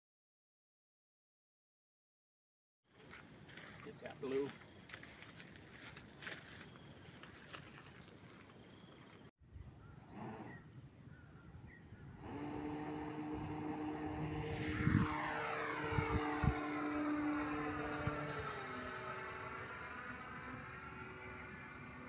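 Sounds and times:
model plane motor buzzing: 10.0 - 10.6, 12.1 - 22.0.

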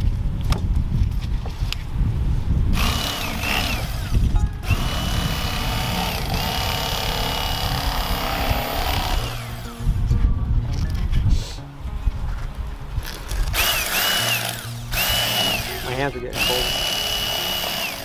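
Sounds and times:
electric knife motor whine: 2.8 - 9.8, 13.3 - 18.0.

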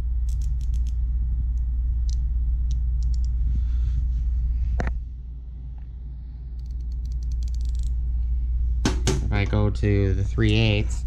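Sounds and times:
low rumble: 0.0 - 11.0
ratchet clicking: 0.3 - 1.0, 6.6 - 7.9.

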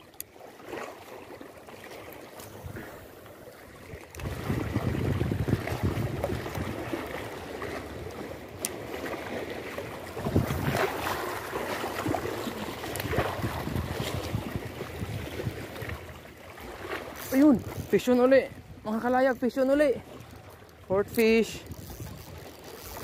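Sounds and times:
sea water lapping: 0.0 - 23.0
wind buffeting microphone: 3.9 - 8.2, 10.1 - 11.3, 12.0 - 16.2, 17.2 - 23.0.

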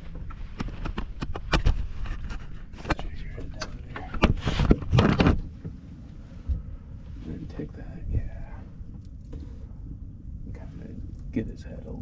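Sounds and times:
rustling scrape: 0.0 - 7.6.

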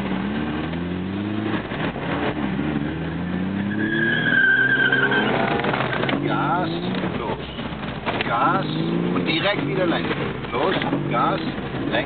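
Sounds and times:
car engine revving: 0.0 - 12.0
tyre squeal: 3.6 - 6.0.

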